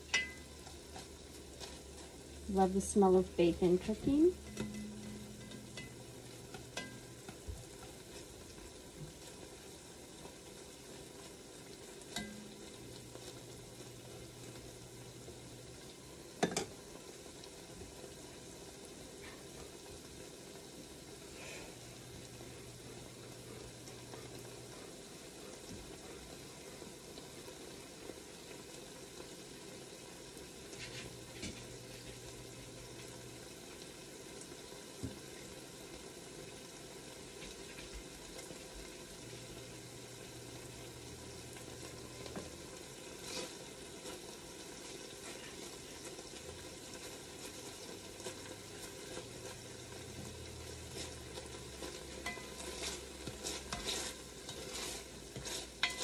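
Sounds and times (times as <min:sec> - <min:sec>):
utensil scraping pot: 0:00.0 - 0:02.9, 0:03.6 - 0:08.4, 0:43.1 - 0:46.2, 0:46.9 - 0:56.0
bacon sizzling in a pot: 0:00.0 - 0:56.0.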